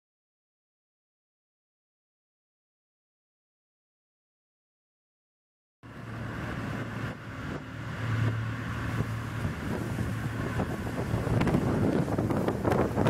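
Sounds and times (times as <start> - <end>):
ferry engine droning: 5.8 - 13.0
rushing water: 5.9 - 13.0
wind on microphone: 6.0 - 13.0.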